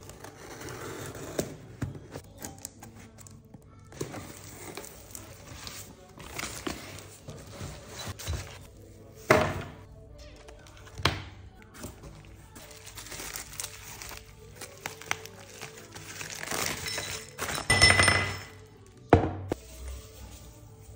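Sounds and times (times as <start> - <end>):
background music: 0.0 - 20.9
plastic bubble wrap rustling: 11.7 - 17.7.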